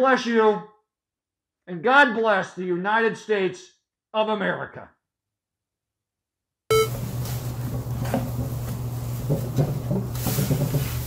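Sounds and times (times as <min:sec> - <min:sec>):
short electronic beep: 0:06.7 - 0:07.0
wipe rustling on glass bottle: 0:07.0 - 0:11.0.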